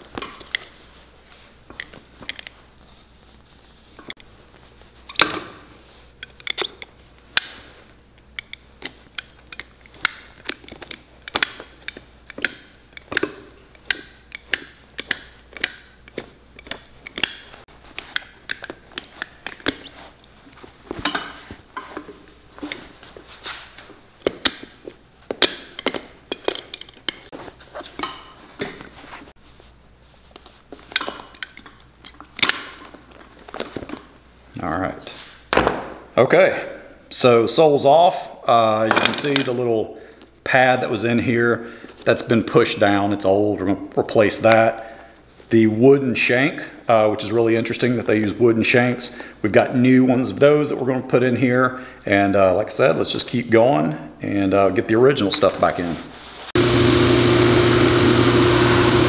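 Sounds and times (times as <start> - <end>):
knife cutting and prying boot sole: 6.3 - 20.3.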